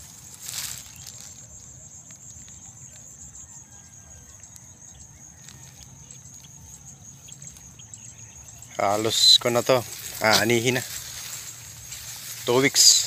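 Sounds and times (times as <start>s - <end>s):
rice plants rustling: 0.0s - 2.6s, 8.6s - 13.0s
high-pitched insect trill: 0.0s - 13.0s.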